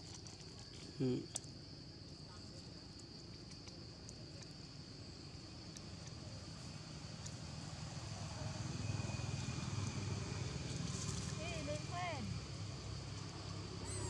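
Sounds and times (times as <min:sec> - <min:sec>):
insects droning: 0:00.0 - 0:14.0
vehicle rumble: 0:07.1 - 0:14.0.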